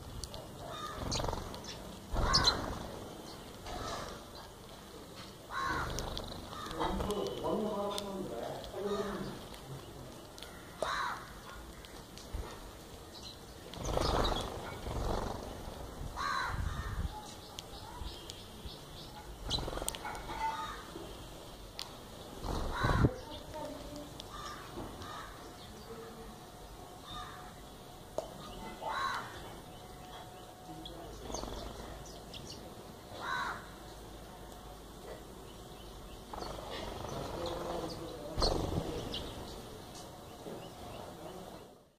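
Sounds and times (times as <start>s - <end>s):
sparrow wingbeats fluttering: 0.0s - 17.8s, 19.0s - 20.9s, 21.7s - 25.6s, 31.1s - 32.3s, 36.2s - 40.2s
low bird call: 0.6s - 2.9s.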